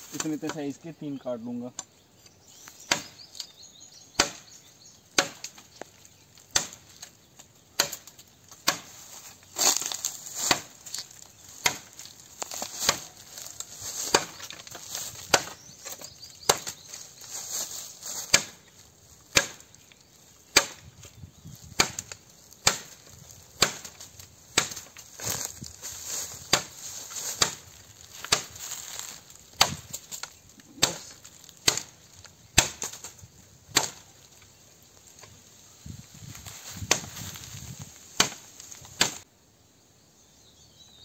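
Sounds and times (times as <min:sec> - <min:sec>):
machete chopping bamboo: 0:02.7 - 0:03.5, 0:04.1 - 0:05.8, 0:06.4 - 0:07.1, 0:07.7 - 0:17.0, 0:17.7 - 0:18.7, 0:19.3 - 0:19.8, 0:20.5 - 0:34.2, 0:36.8 - 0:37.4, 0:38.2 - 0:39.2.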